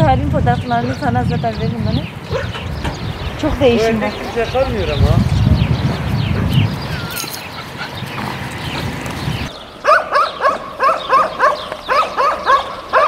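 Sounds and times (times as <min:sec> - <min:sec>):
dogs barking: 0:02.2 - 0:02.9, 0:05.9 - 0:13.0.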